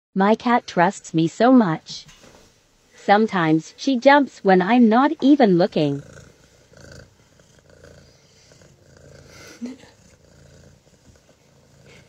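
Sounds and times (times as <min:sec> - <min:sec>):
kitten purring: 0:05.0 - 0:12.0.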